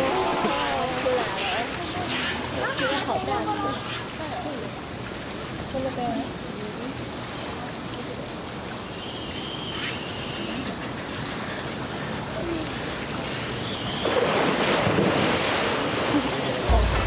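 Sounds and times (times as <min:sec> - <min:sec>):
faint distant voices: 0:00.0 - 0:13.7, 0:14.3 - 0:17.0
running water hiss: 0:00.0 - 0:17.0.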